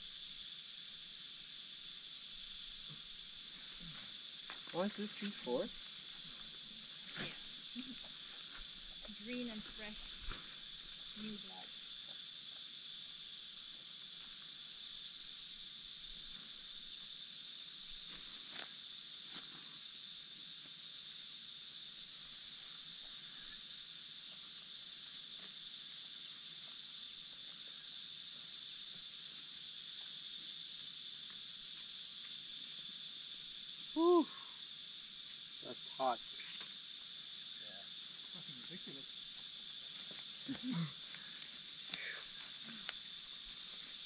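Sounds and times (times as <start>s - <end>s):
insect chorus drone: 0.0s - 44.0s.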